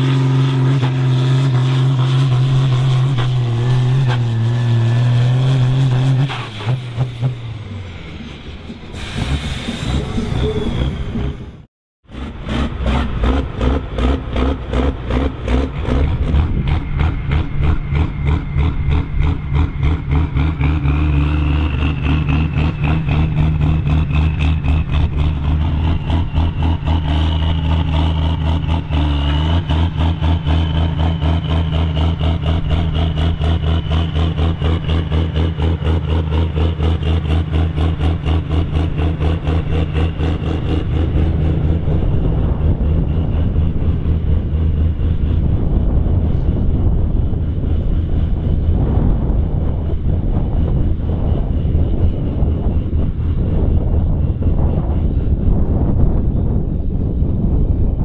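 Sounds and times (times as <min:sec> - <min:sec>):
tractor diesel engine running: 0:12.1 - 0:58.0.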